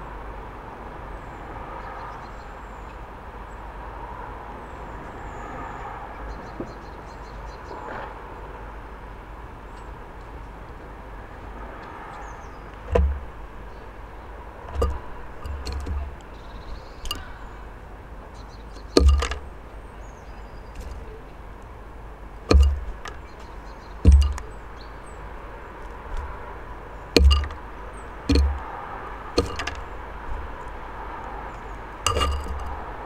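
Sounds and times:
bird pecking on feeder: 0:14.7 - 0:16.2, 0:17.0 - 0:17.4, 0:18.8 - 0:19.5, 0:22.5 - 0:23.2, 0:24.1 - 0:24.6, 0:27.2 - 0:27.6, 0:28.3 - 0:28.8, 0:29.4 - 0:30.5.

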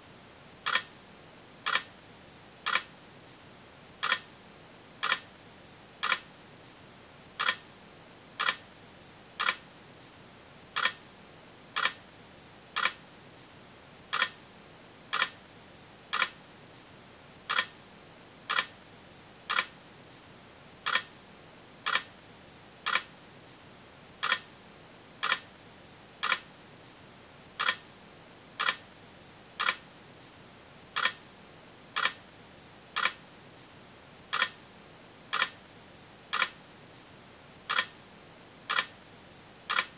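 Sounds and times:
sharp clicks: 0:02.7 - 0:02.9, 0:04.0 - 0:04.2, 0:06.0 - 0:06.2, 0:07.4 - 0:07.6, 0:08.4 - 0:08.6, 0:09.4 - 0:09.6, 0:10.8 - 0:11.0, 0:11.8 - 0:12.0, 0:12.8 - 0:13.0, 0:14.1 - 0:14.4, 0:15.1 - 0:15.4, 0:16.1 - 0:16.4, 0:17.5 - 0:17.7, 0:18.5 - 0:18.7, 0:19.5 - 0:19.7, 0:22.9 - 0:23.1, 0:24.2 - 0:24.4, 0:25.2 - 0:25.4, 0:26.2 - 0:26.4, 0:27.6 - 0:27.8, 0:28.6 - 0:28.8, 0:29.6 - 0:29.8, 0:31.0 - 0:31.2, 0:32.0 - 0:32.2, 0:33.0 - 0:33.2, 0:34.3 - 0:34.6, 0:35.3 - 0:35.6, 0:36.3 - 0:36.6, 0:37.7 - 0:37.9, 0:38.7 - 0:38.9.

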